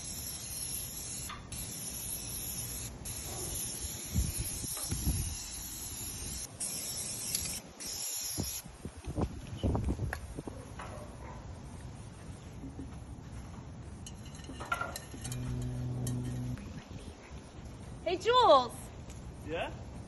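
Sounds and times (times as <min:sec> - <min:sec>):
spray paint can hissing: 0:00.0 - 0:08.7.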